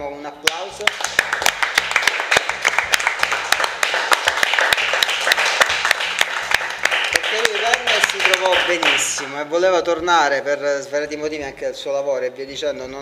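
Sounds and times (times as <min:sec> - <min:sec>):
people applauding: 0:00.5 - 0:09.4.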